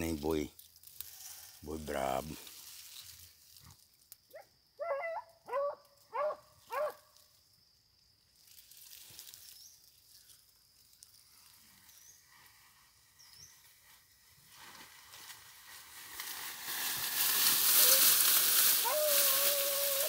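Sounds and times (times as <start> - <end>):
dog barking: 4.4 - 7.0.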